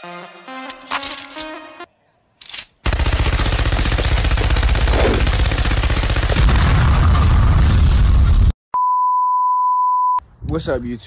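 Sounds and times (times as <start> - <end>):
machine gun firing: 2.8 - 7.8.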